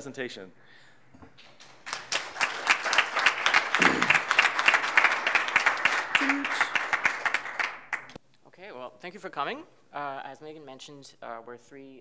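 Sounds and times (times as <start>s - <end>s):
audience applauding: 1.4s - 8.2s.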